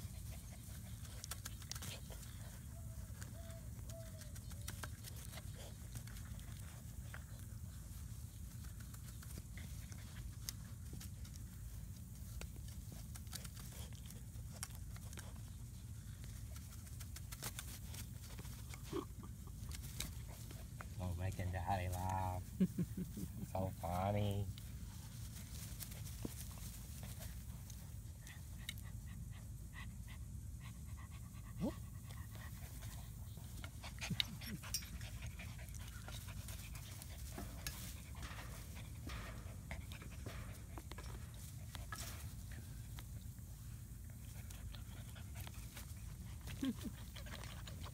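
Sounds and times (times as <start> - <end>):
puppy chewing rubber stick: 0.0 - 21.0, 31.6 - 47.9
rustling on grass: 0.0 - 30.2, 32.0 - 47.9
low steady rumble: 0.0 - 47.9.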